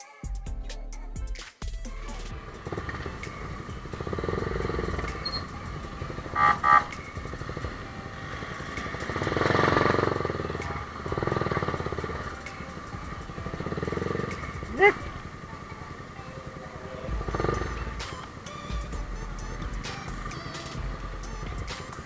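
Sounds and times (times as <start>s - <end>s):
road traffic: 2.0s - 22.0s
motorcycles passing: 2.1s - 22.0s.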